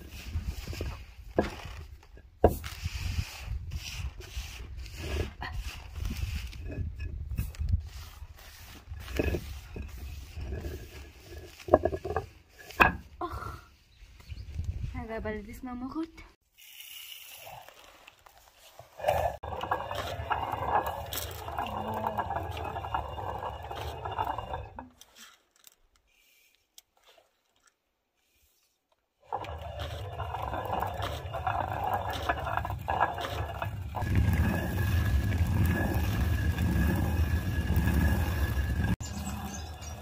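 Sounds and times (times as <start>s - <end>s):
stone quern grinding: 0.1s - 13.1s, 18.7s - 26.6s, 29.2s - 40.0s.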